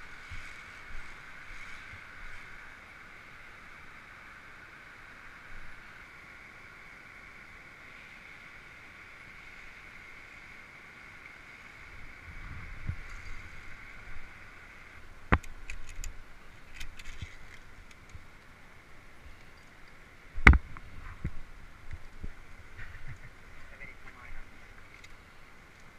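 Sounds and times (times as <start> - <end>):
steady hiss: 0.0 - 25.9
climbing gear clinking on cable: 19.4 - 20.0.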